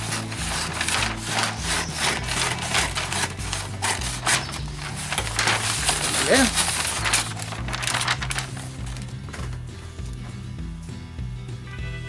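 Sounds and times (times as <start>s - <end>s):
paper rasping strokes: 0.0s - 9.1s.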